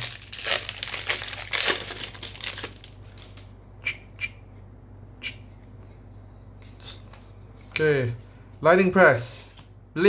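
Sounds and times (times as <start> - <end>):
wrapper crinkling and tearing: 0.0 - 3.5.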